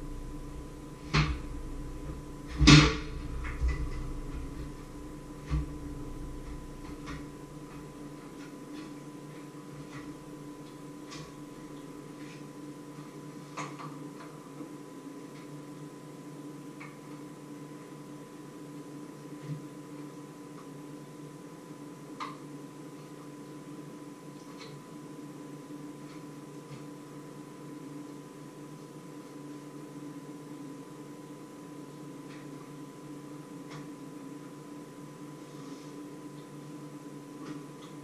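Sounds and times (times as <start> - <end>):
steady low hum: 0.0 - 38.0
knocks of objects being handled: 1.0 - 9.0.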